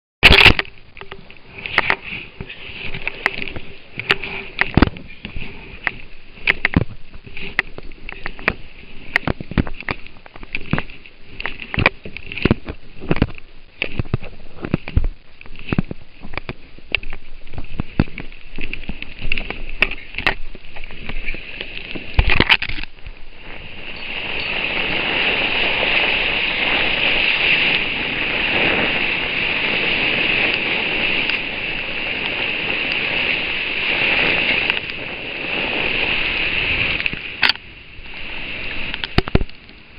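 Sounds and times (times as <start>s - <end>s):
water spraying past kayak hull: 15.5s - 39.9s.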